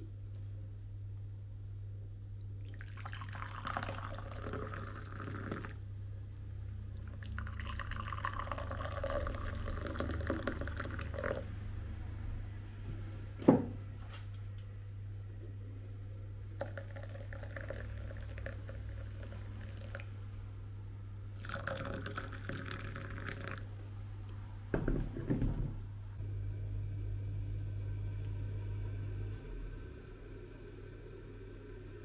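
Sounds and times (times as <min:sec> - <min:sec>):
low steady hum: 0:00.0 - 0:32.0
hot water pouring into glass: 0:02.7 - 0:05.8, 0:07.0 - 0:11.5, 0:16.6 - 0:20.1, 0:21.4 - 0:23.7.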